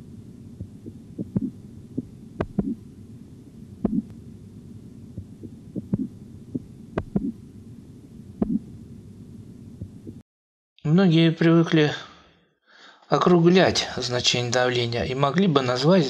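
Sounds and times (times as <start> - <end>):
low steady hum: 0.0 - 10.2
soft dull heartbeat thuds: 0.6 - 2.8, 3.8 - 4.2, 5.1 - 7.4, 8.4 - 8.7, 9.8 - 10.2.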